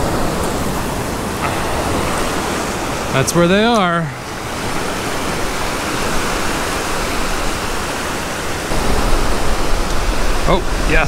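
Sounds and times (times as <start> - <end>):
ocean surf breaking: 0.0 - 11.0
wind rumble on microphone: 4.2 - 11.0.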